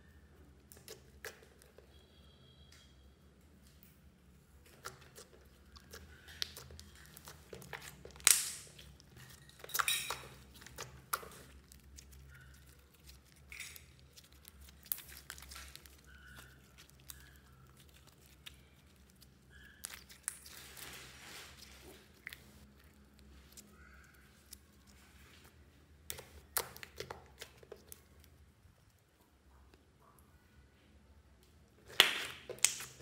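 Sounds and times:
slime squelching and popping: 0:04.6 - 0:25.0, 0:26.0 - 0:28.4, 0:31.8 - 0:33.0.

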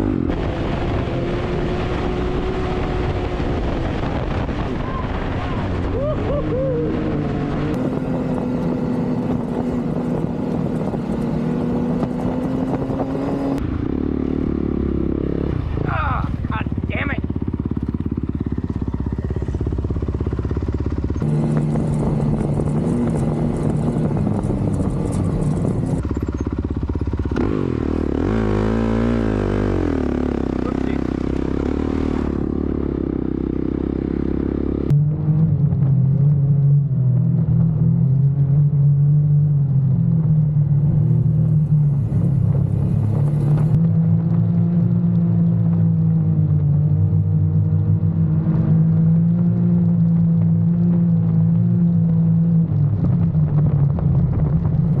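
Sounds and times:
dirt bike engine revving: 0:00.0 - 0:35.0
utility vehicle engine drone: 0:00.0 - 0:55.0.

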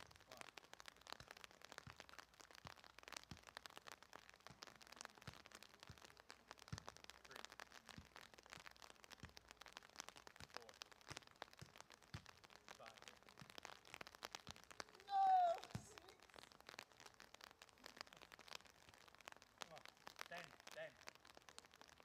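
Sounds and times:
faint rain pattering: 0:00.0 - 0:22.0
soccer ball thuds: 0:15.6 - 0:16.0.

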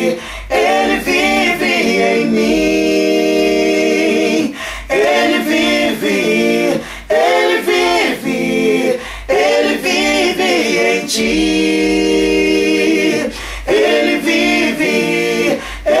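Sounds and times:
choir singing in harmony: 0:00.0 - 0:16.0
singers breathing: 0:00.1 - 0:00.5, 0:04.5 - 0:04.9, 0:06.8 - 0:07.1, 0:08.9 - 0:09.3, 0:13.3 - 0:13.7, 0:15.5 - 0:15.9.

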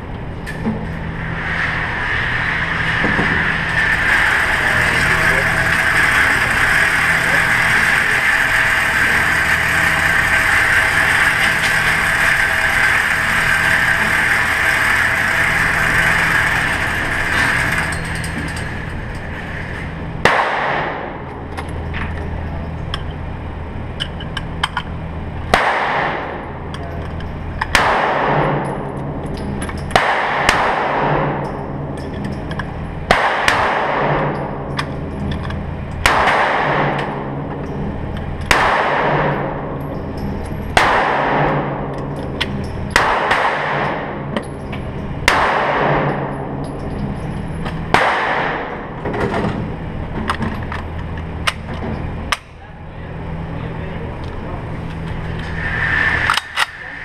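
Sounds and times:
steady low hum: 0:00.0 - 0:57.0
gunshots ringing off walls: 0:20.2 - 0:21.2, 0:25.5 - 0:26.4, 0:27.7 - 0:28.8, 0:29.9 - 0:31.5, 0:33.1 - 0:34.4, 0:36.0 - 0:37.3, 0:38.5 - 0:39.6, 0:40.8 - 0:41.9, 0:42.9 - 0:44.3, 0:45.2 - 0:46.4, 0:47.9 - 0:48.9.

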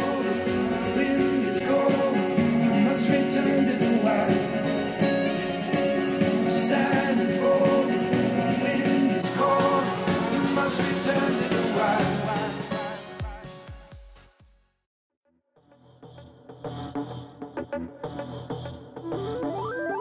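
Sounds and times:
song with guitar and singing: 0:00.0 - 0:13.9.

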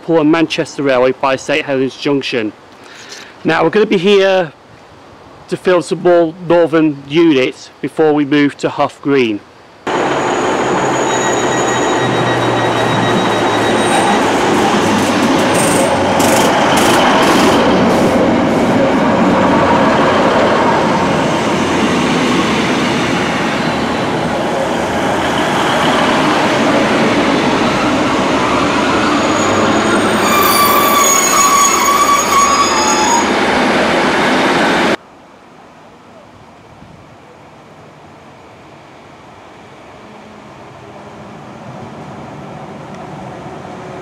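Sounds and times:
high metallic squeal: 0:09.9 - 0:18.1, 0:27.6 - 0:33.5
diesel train engine: 0:09.9 - 0:35.0.

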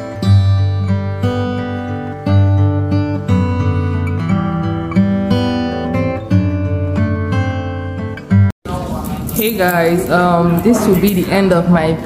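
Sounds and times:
guitar strumming chords: 0:00.0 - 0:08.5.

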